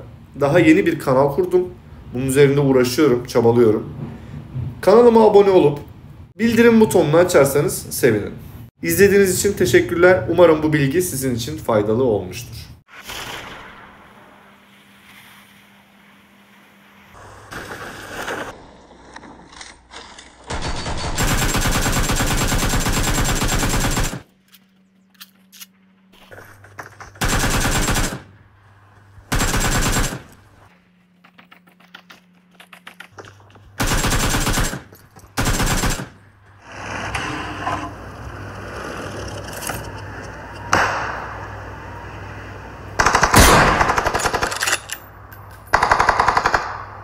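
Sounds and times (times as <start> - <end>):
game ambience: 3.8 - 47.0
automatic gunfire bursts: 20.5 - 24.3, 27.2 - 28.4, 29.3 - 30.4, 33.8 - 36.2, 43.0 - 44.5, 45.7 - 47.0.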